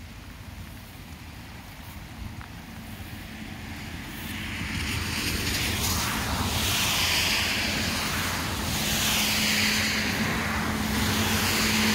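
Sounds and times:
passing vehicle rushing: 0:03.1 - 0:11.9.

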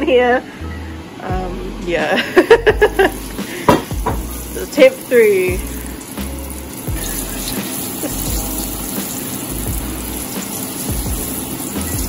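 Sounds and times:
range hood fan rushing: 0:00.0 - 0:12.0
hot oil bubbling and sizzling: 0:02.8 - 0:12.0.

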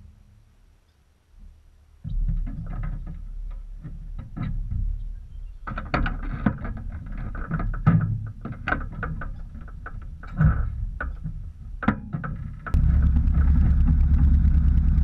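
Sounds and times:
clicks knocks and rattles: 0:05.6 - 0:12.8.

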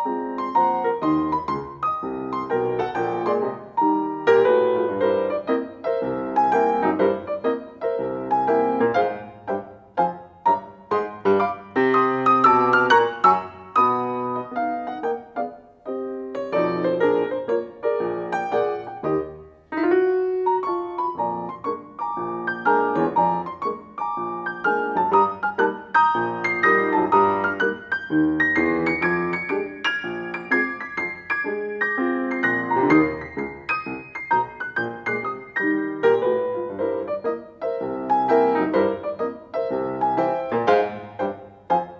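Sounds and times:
grand piano playing ragtime: 0:00.0 - 0:41.9.

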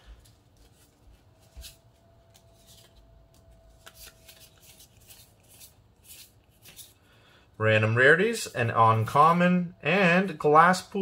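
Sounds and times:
cards flipped by hand: 0:00.2 - 0:07.0.

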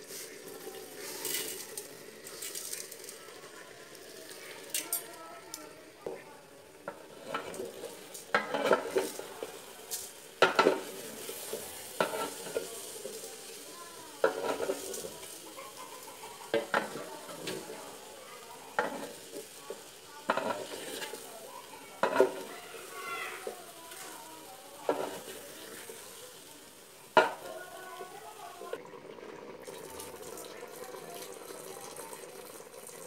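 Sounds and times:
food sizzling: 0:00.0 - 0:33.0
wooden spatula scraping metal pot: 0:06.9 - 0:09.6, 0:10.4 - 0:12.7, 0:14.2 - 0:15.3, 0:18.7 - 0:19.6, 0:20.2 - 0:21.3, 0:22.0 - 0:24.2, 0:24.8 - 0:26.1.

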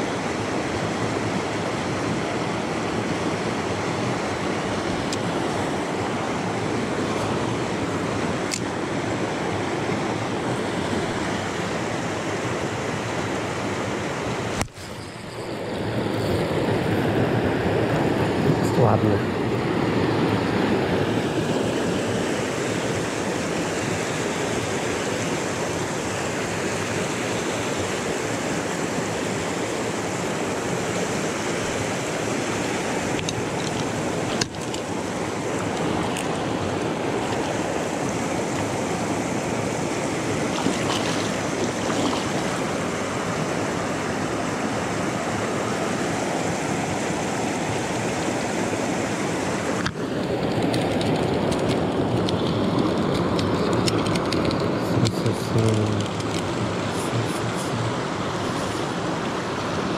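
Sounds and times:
river rushing over rapids: 0:00.0 - 0:59.9.

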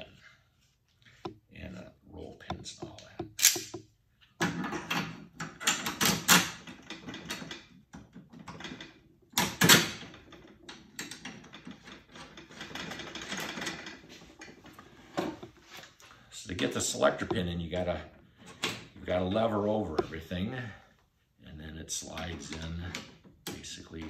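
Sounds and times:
metal parts clicking and clacking: 0:02.8 - 0:03.8.

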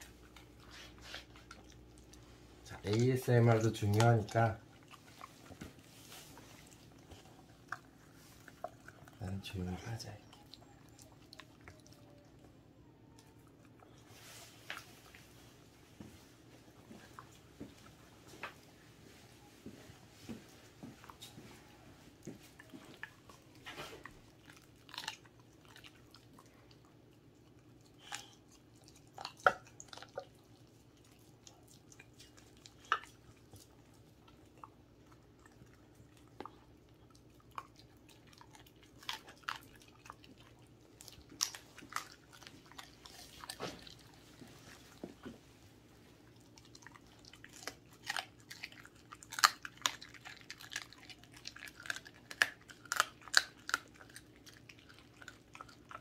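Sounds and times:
dog licking: 0:00.0 - 0:12.2
dog chewing clicks: 0:02.8 - 0:05.3, 0:46.6 - 0:56.0.

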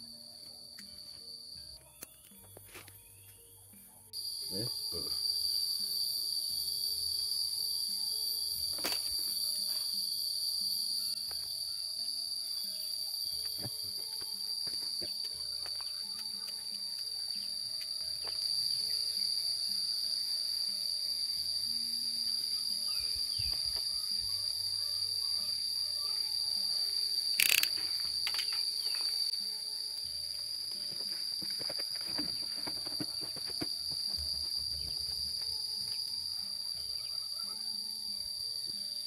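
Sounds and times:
insects droning: 0:00.0 - 0:39.0
sharp click: 0:27.4 - 0:28.7.

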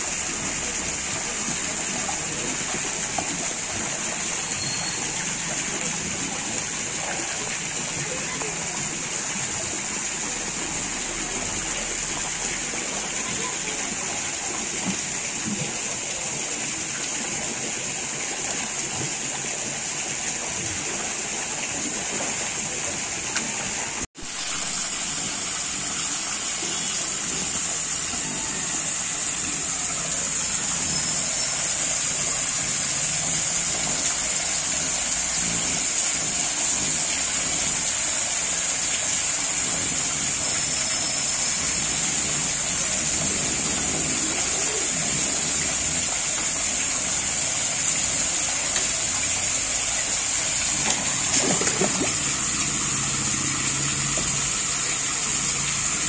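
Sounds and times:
water pouring into tank: 0:00.0 - 0:56.0.

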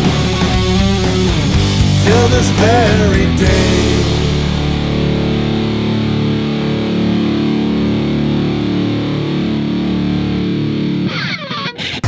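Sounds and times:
distorted electric guitar chords: 0:00.0 - 0:12.0.

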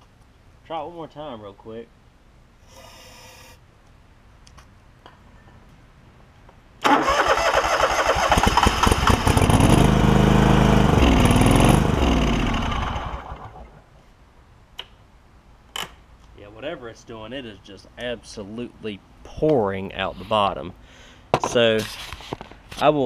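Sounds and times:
engine cranking on starter: 0:06.8 - 0:13.7
engine running with wavering note: 0:08.7 - 0:13.8.

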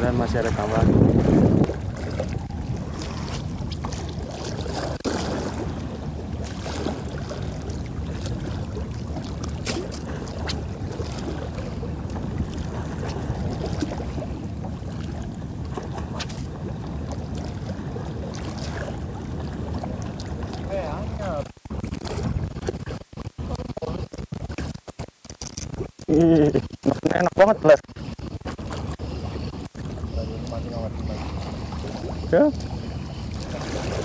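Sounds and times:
wind rumble on microphone: 0:00.0 - 0:24.8
water sounds: 0:00.0 - 0:34.0.

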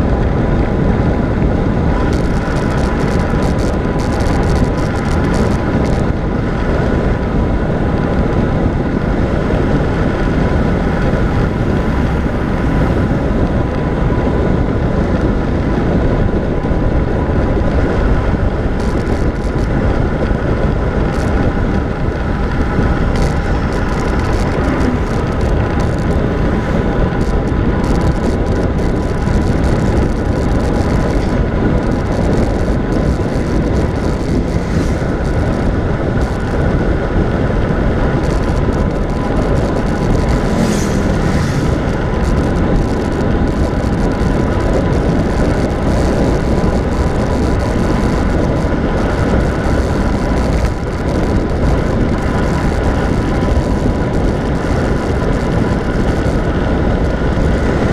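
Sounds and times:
tyres rushing on asphalt: 0:00.0 - 0:57.9
wind buffeting microphone: 0:00.0 - 0:57.9
faint steady whine: 0:16.7 - 0:57.9.

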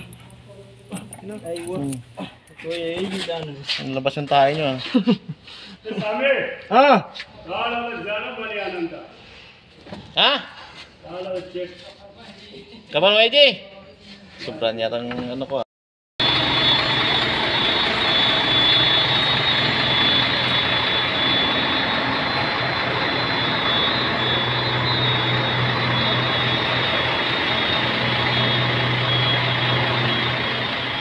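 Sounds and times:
truck diesel engine idling: 0:16.2 - 0:31.0.

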